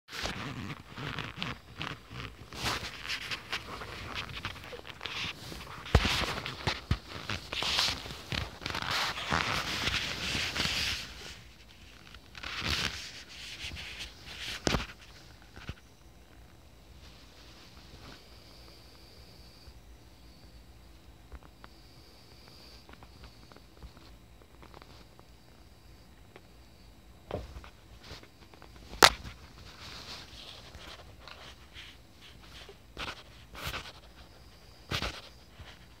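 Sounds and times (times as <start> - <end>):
bedding rustling and scraping: 0.1 - 15.9, 27.3 - 36.0
muffled bumps and rubs: 0.2 - 18.2, 27.2 - 36.0.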